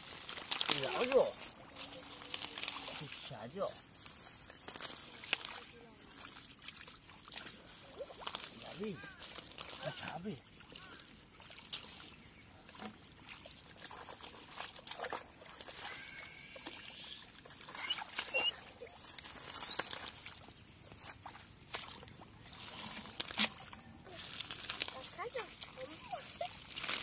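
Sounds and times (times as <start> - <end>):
leaves rustling: 0.0 - 12.1, 15.4 - 27.0
sloshing and squelching in mud: 0.0 - 27.0
faint high chirps: 15.8 - 20.4.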